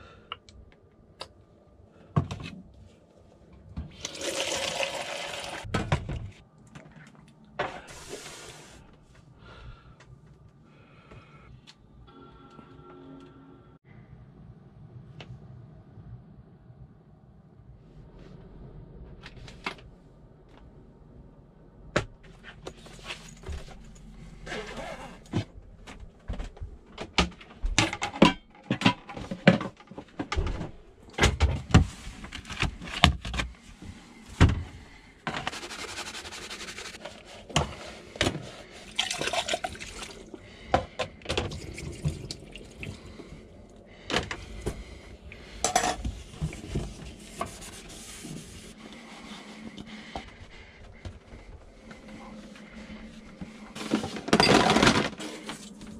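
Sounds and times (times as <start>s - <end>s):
tap water running into sink: 4.0s - 5.6s.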